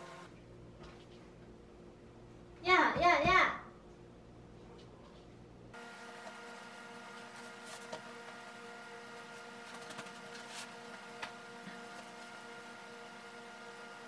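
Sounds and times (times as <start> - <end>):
appliance electrical hum: 0.0 - 14.0.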